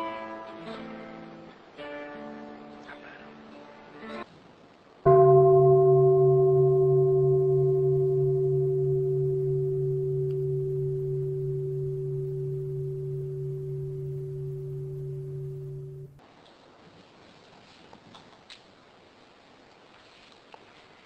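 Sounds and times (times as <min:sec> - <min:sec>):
meditation bowl ringing: 0:05.1 - 0:16.2.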